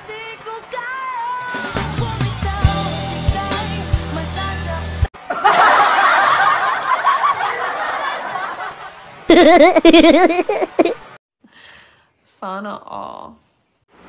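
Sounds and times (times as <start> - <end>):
background music: 0.0 - 5.1
crowd laughing: 5.2 - 11.2
person laughing heartily: 9.3 - 11.2.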